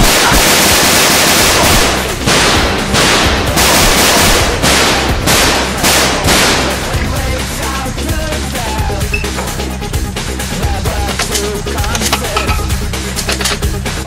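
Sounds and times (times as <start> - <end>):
rapid automatic gunfire: 0.0 - 7.0.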